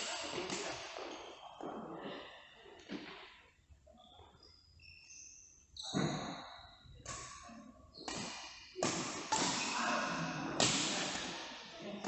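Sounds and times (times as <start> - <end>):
shoe squeaks on court floor: 4.0 - 7.0.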